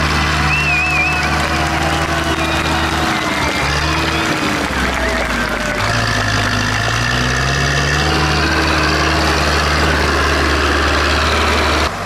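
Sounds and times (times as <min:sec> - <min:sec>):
tractor diesel engine running: 0:00.0 - 0:12.0.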